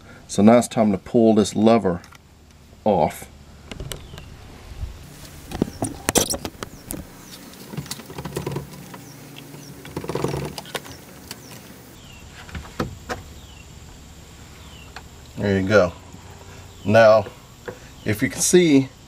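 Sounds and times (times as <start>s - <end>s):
metal and plastic parts rattling: 5.4s - 11.6s.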